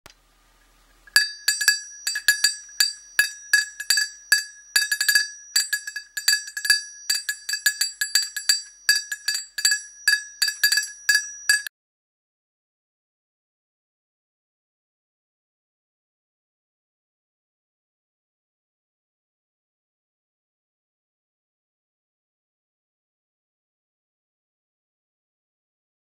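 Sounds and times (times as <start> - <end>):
dog bell ringing: 1.2 - 11.7.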